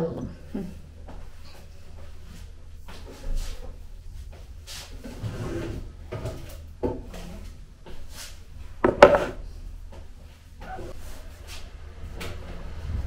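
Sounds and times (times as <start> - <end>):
jars and plastic tubs knocking: 8.8 - 9.4
plastic tub set on wooden counter: 8.8 - 9.4.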